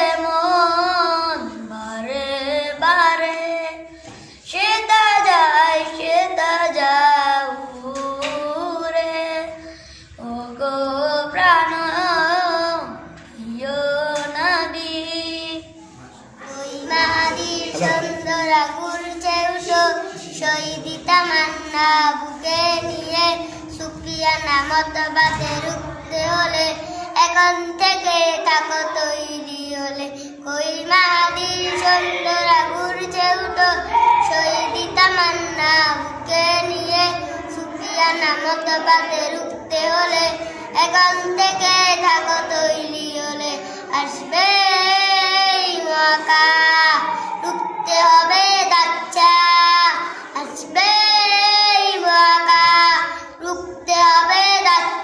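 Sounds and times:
boy singing: 0.0s - 55.0s
another boy singing: 16.4s - 55.0s.

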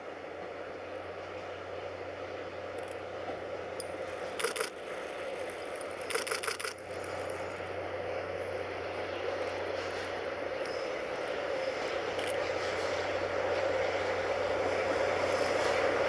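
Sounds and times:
diesel locomotive engine drone: 0.0s - 16.0s
sharp clicking and rattling: 3.8s - 7.6s.

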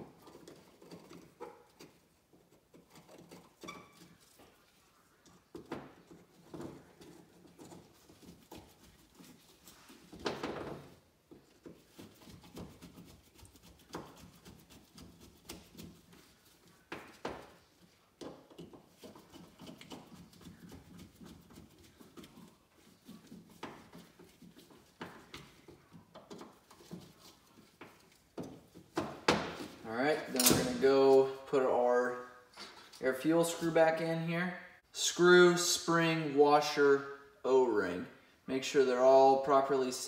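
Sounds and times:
handling noises: 0.0s - 31.6s.

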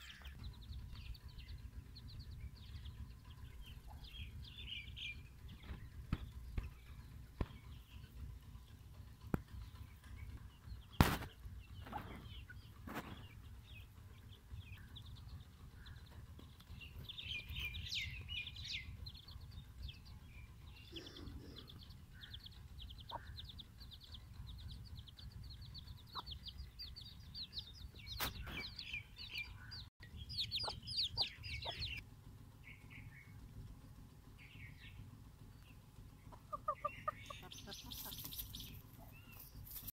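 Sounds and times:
chicks peeping: 0.0s - 32.0s, 35.7s - 39.8s
chicken clucking: 30.4s - 32.0s, 36.3s - 39.5s.

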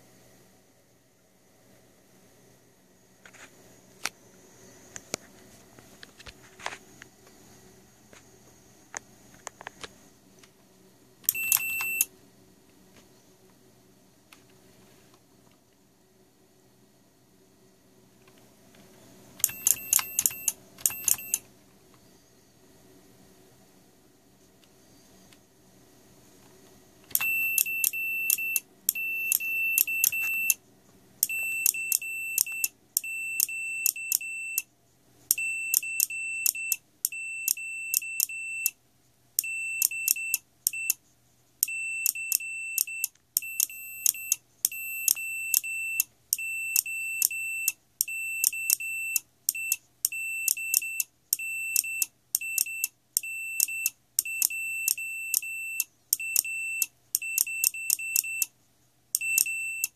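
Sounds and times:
morse code beeps: 11.3s - 12.1s, 19.4s - 21.4s, 27.1s - 30.6s, 31.2s - 34.7s, 35.3s - 38.8s, 39.4s - 41.0s, 41.6s - 58.5s, 59.2s - 59.9s.

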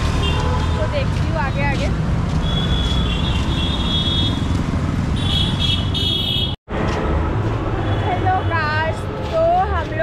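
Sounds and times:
road traffic rumble: 0.0s - 10.0s
vehicle horns honking: 5.1s - 6.6s.

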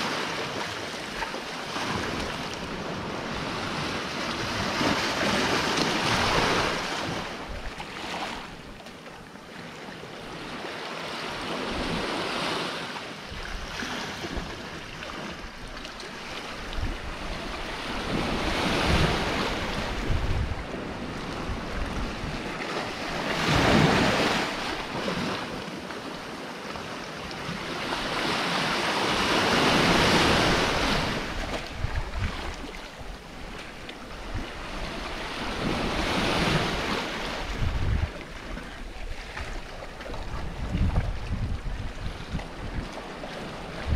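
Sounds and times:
sea waves breaking on rocks: 0.0s - 43.9s
wind buffeting microphone: 13.3s - 25.3s, 29.1s - 43.9s.

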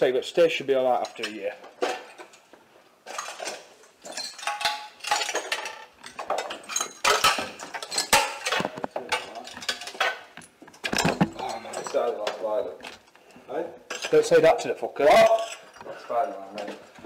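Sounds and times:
hard objects knocking and clinking: 1.0s - 13.1s.

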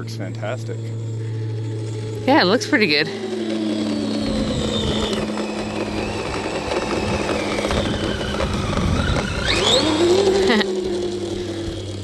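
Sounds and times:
electric motor whining: 0.0s - 12.0s
track rattling: 0.2s - 12.0s.

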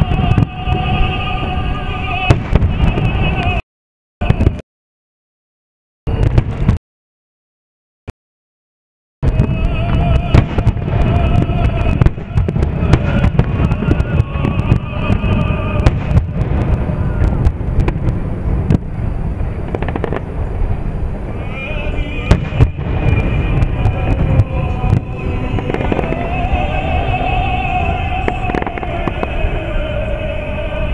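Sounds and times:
fireworks cracks and booms: 0.0s - 3.6s, 4.2s - 4.6s, 6.1s - 6.8s, 9.2s - 21.2s, 22.1s - 30.5s
music: 9.4s - 16.2s, 21.8s - 30.9s.

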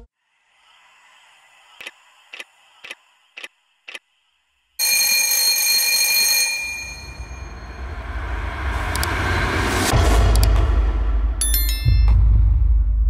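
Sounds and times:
loud alarm ringing: 4.8s - 8.0s
low rumble: 7.2s - 13.0s.

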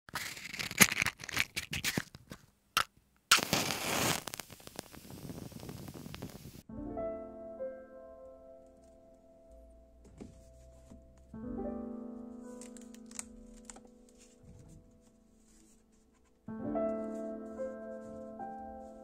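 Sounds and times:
crackling scraping handling noise: 0.1s - 6.4s, 12.5s - 17.4s
soft piano music: 6.6s - 19.0s.

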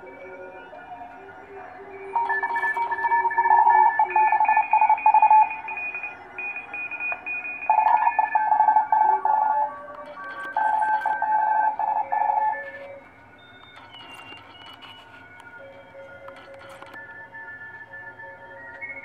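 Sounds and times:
morse code whistling tones: 0.0s - 19.0s.

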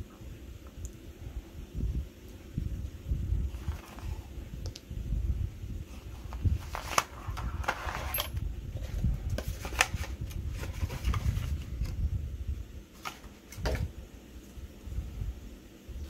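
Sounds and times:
paper and cardboard rustling: 3.5s - 4.3s, 5.9s - 12.0s, 13.0s - 13.9s.

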